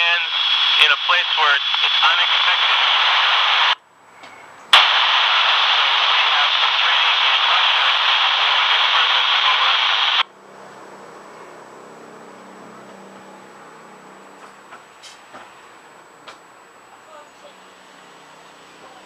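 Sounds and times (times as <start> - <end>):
radio static hiss: 0.0 - 3.8, 4.8 - 10.3
radio speaker click: 0.1 - 10.2.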